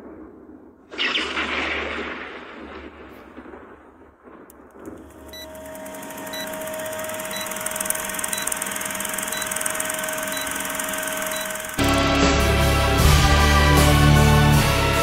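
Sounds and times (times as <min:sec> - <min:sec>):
projector mechanical whirring: 0:04.8 - 0:12.1
faint held tone: 0:05.3 - 0:11.8.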